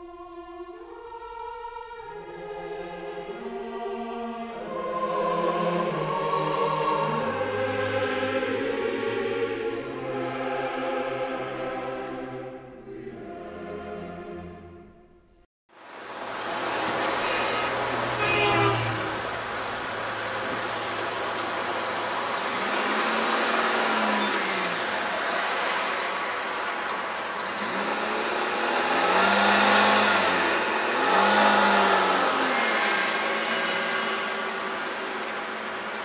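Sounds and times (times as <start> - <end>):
road traffic rumble: 15.8 - 36.0.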